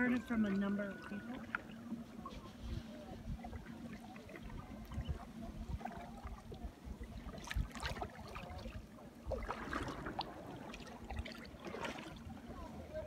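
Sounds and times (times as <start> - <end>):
paddle splashing in water: 0.0 - 13.0.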